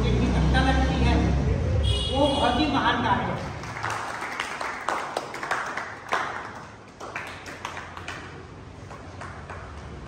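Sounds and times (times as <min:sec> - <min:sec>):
people clapping: 0:03.4 - 0:10.0.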